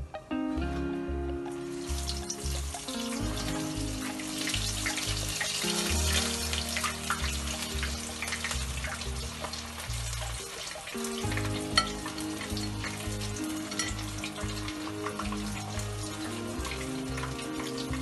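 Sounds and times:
background music with low notes: 0.0s - 18.0s
food frying in sizzling oil: 1.4s - 18.0s.

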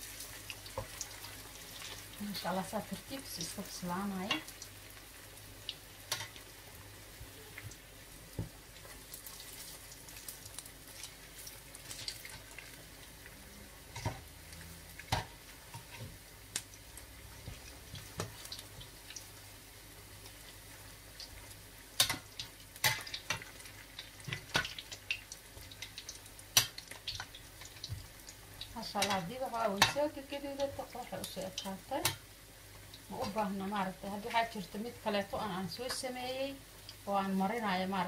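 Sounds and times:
oil bubbling and sizzling: 0.0s - 38.0s
spatula clicking in pan: 22.0s - 23.4s, 24.0s - 32.2s.

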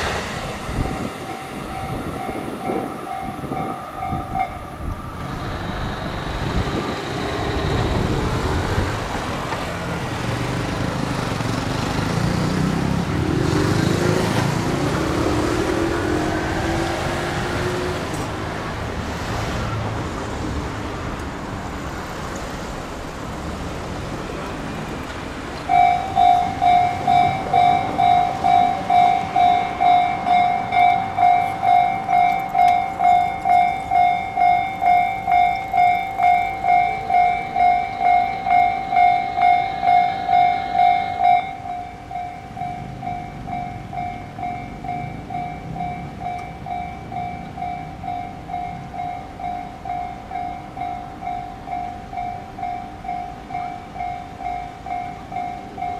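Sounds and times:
level crossing warning bell: 0.0s - 10.6s, 25.6s - 55.9s
road traffic passing: 0.0s - 55.9s.

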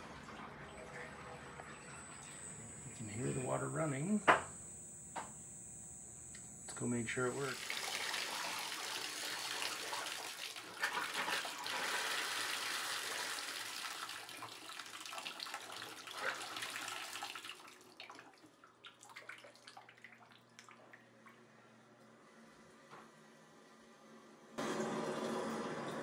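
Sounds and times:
water pouring into bathtub: 7.4s - 21.1s.

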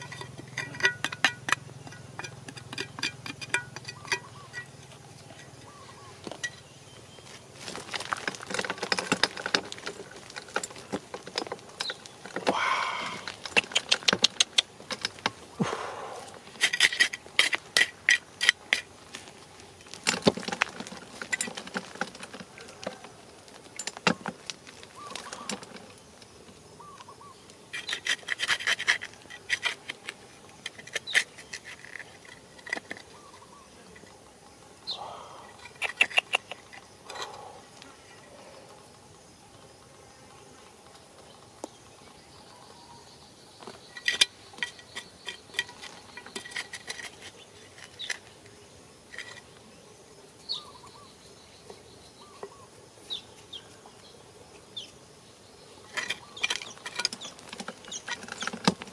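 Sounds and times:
hands scraping through gravelly soil: 7.0s - 26.0s
small stones rattling: 7.5s - 15.5s, 16.3s - 25.9s.

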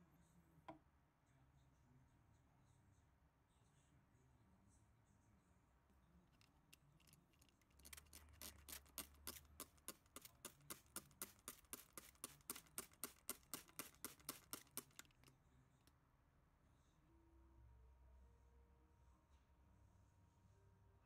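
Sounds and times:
spray bottle squirts: 7.8s - 15.3s.

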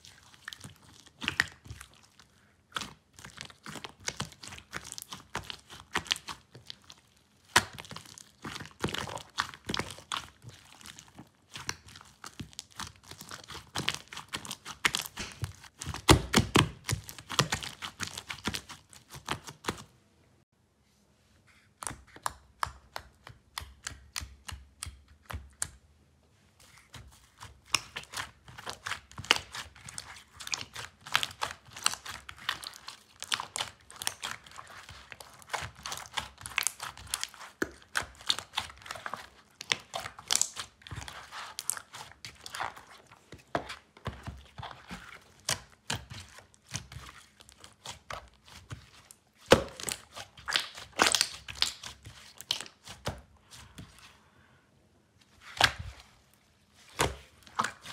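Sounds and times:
slime squeezed with sticky pops: 27.3s - 42.9s, 44.3s - 53.3s.

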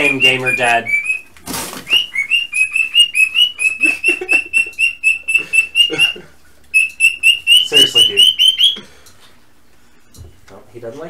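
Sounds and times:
cockatiel chirping: 0.0s - 1.3s, 1.9s - 8.8s.

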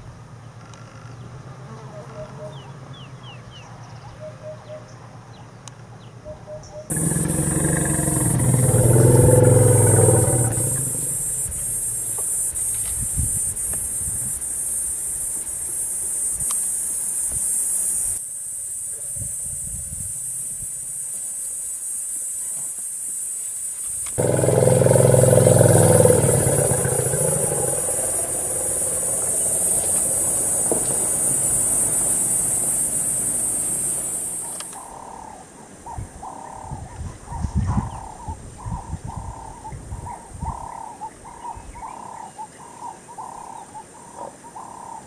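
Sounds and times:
high-pitched insect chorus: 6.9s - 35.4s
low rumble: 24.2s - 31.2s.

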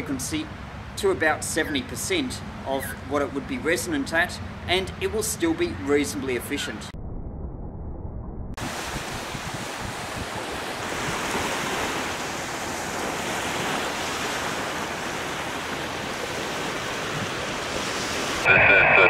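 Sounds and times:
wind buffeting microphone: 8.5s - 13.9s
surf rushing: 8.6s - 19.0s.

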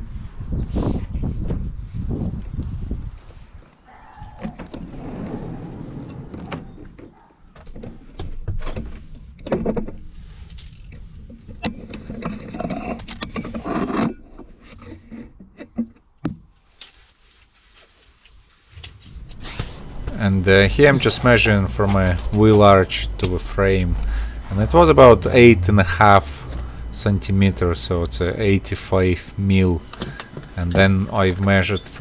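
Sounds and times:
sliding door rolling and scraping: 4.6s - 7.0s, 18.8s - 26.9s
rustling: 16.6s - 23.2s.

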